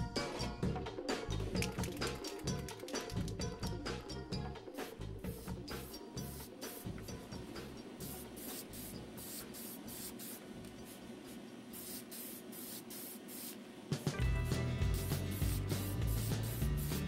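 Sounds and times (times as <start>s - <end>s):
background music: 0.0s - 9.2s, 14.1s - 17.0s
spray paint hissing bursts: 4.8s - 6.9s, 8.0s - 10.4s, 11.7s - 13.6s, 14.8s - 17.0s.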